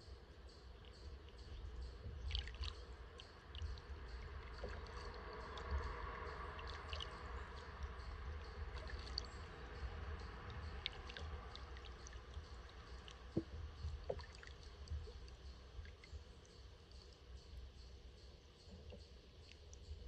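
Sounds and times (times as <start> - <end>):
steady low rumble: 0.0 - 20.0
water splashes and drips: 0.6 - 17.4
kayak paddle strokes in water: 2.1 - 16.0.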